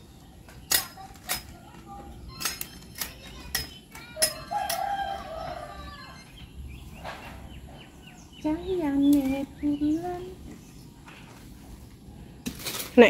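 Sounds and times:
rooster crowing: 0:04.3 - 0:06.3.

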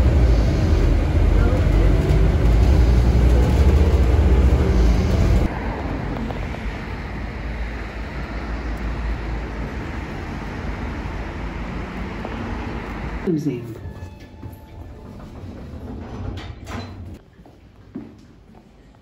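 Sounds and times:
street noise with passing traffic: 0:00.0 - 0:13.5
bus interior rumble: 0:00.0 - 0:17.2.

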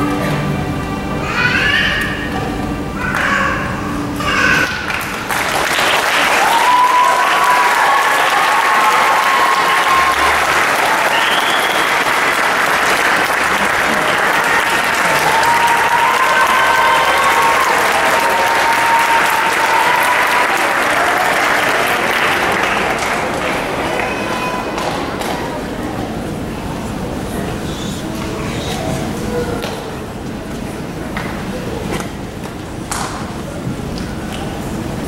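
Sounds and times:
voices cheering: 0:03.0 - 0:25.6
audience applauding: 0:04.5 - 0:25.9.

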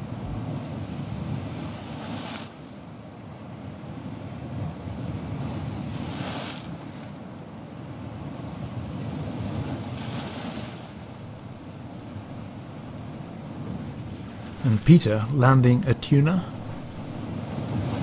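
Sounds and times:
low wind rumble: 0:00.0 - 0:02.0, 0:10.9 - 0:18.0
waves washing: 0:00.0 - 0:02.8, 0:08.1 - 0:18.0.

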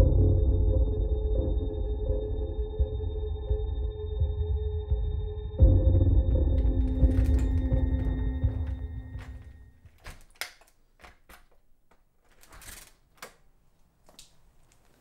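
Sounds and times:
horror score: 0:00.0 - 0:09.7
key working a door lock: 0:06.6 - 0:13.4
door knob turning: 0:06.6 - 0:13.5.

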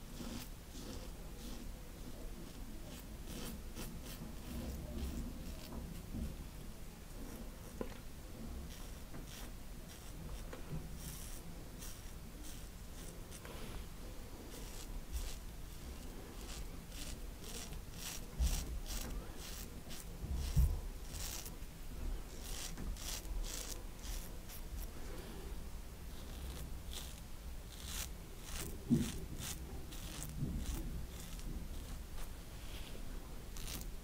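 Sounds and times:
razor rasping on stubble: 0:00.2 - 0:05.7, 0:08.6 - 0:13.5, 0:14.5 - 0:21.6, 0:22.3 - 0:24.9, 0:26.1 - 0:32.1, 0:33.6 - 0:33.9.

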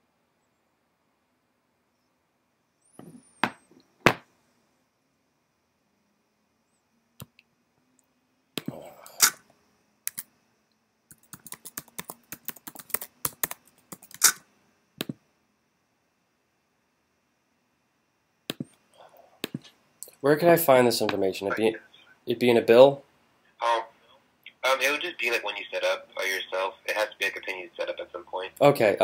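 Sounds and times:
keyboard typing: 0:11.1 - 0:14.4.

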